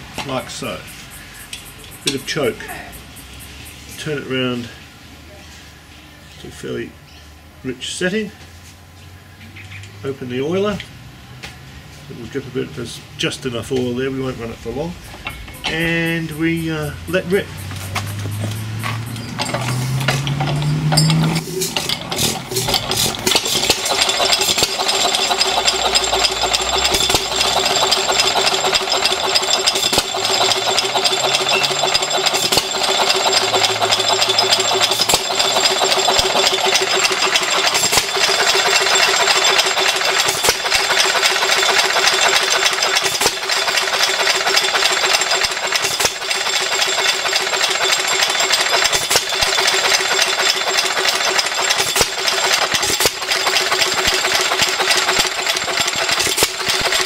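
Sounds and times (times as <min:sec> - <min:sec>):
hand cranking engine: 0:15.1 - 0:57.0
hit-and-miss engine clattering: 0:15.1 - 0:57.0
engine firing knocks: 0:17.8 - 0:57.0.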